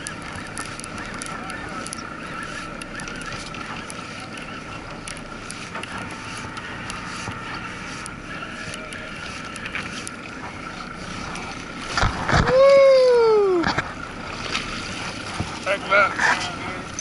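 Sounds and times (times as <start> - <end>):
faint clicks: 0.0 - 10.6
boat engine whine: 0.0 - 17.0
water rushing: 0.0 - 17.0.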